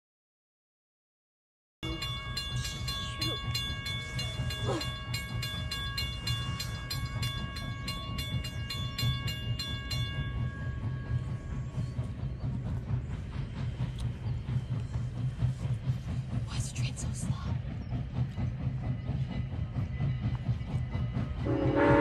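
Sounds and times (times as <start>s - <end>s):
crossing bell ringing: 1.8s - 12.0s.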